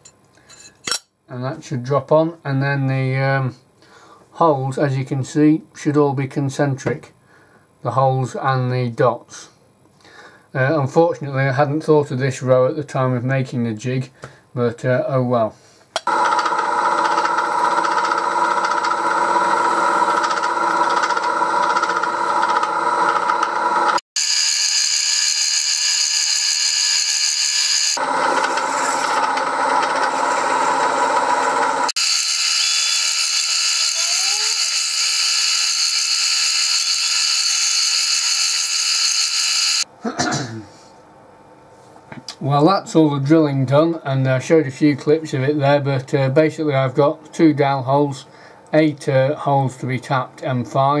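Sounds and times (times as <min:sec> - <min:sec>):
milling machine drilling metal: 0:16.1 - 0:39.8.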